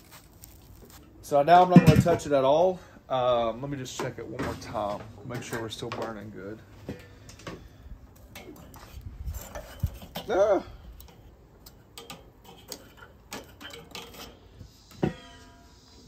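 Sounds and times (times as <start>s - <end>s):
metal tongs tapping on grate: 11.0s - 14.2s.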